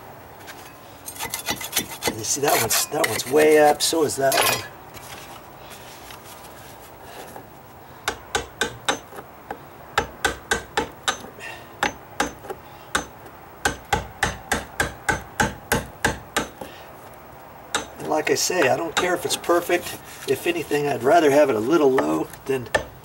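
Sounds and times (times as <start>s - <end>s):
hammer tapping chisel on wood: 8.1s - 9.2s, 10.0s - 16.7s, 17.7s - 18.0s, 21.9s - 23.0s.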